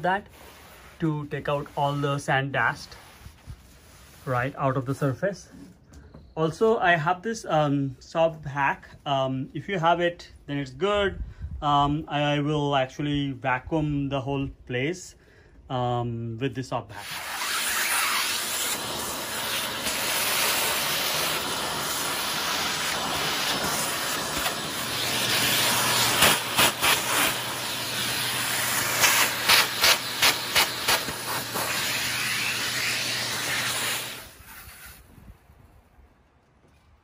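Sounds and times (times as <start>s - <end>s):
vacuum cleaner rushing hiss: 17.0s - 35.1s.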